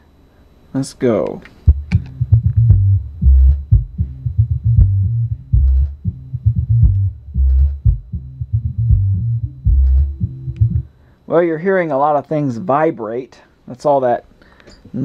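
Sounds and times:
bass music from subwoofer: 1.7s - 11.0s.

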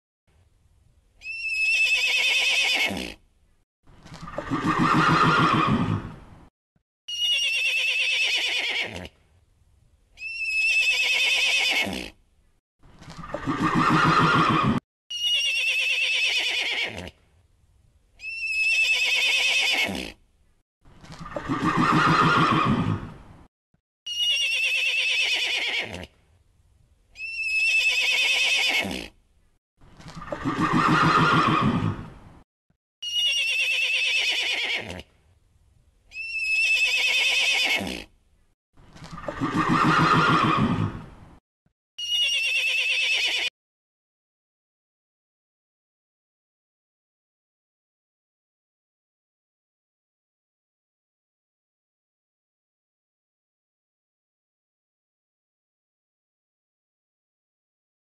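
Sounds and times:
horse neighing: 1.2s - 3.2s, 4.2s - 6.2s, 7.1s - 9.2s, 10.2s - 12.2s, 13.2s - 17.2s, 18.2s - 20.2s, 21.2s - 23.2s, 24.1s - 26.2s, 27.2s - 29.2s, 30.1s - 32.1s, 33.0s - 35.1s, 36.2s - 38.1s, 39.1s - 41.1s, 42.0s - 43.5s.

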